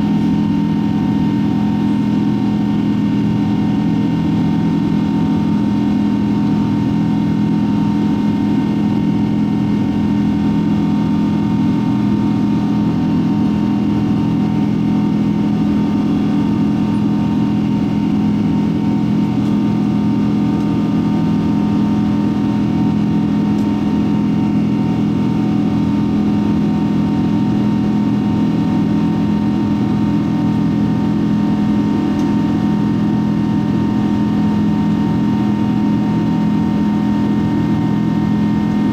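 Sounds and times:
airplane cabin engine drone: 0.0s - 38.9s.

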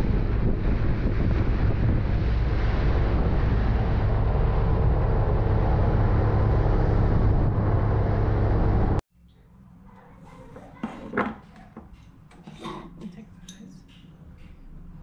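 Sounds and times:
wind on microphone: 0.0s - 9.0s.

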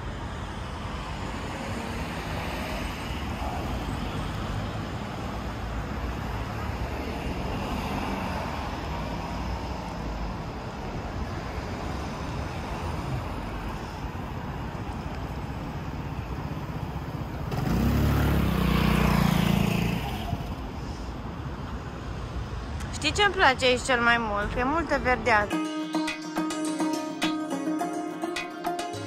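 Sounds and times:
passing cars: 0.0s - 25.6s
motor scooter passing by: 15.8s - 20.8s.

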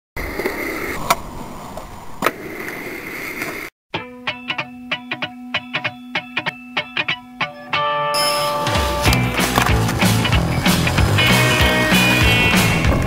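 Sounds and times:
skateboard rolling: 0.2s - 3.7s, 8.5s - 13.0s
plucked-string music: 3.9s - 13.0s
skateboard clacks: 9.0s - 13.0s.

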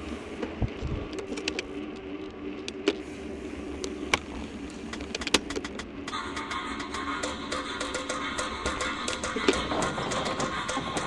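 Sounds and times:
bicycle tyres humming: 0.0s - 11.0s
bike clicks and rattles: 0.4s - 3.0s, 3.7s - 6.0s.

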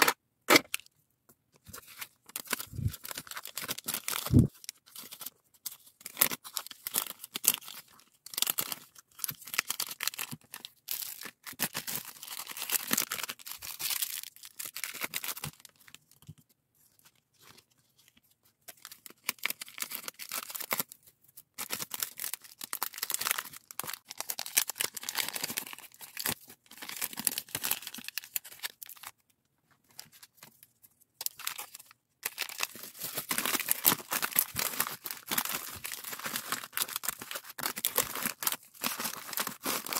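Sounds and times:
plastic bags crinkling: 1.7s - 5.2s, 21.6s - 29.1s, 31.2s - 39.9s.

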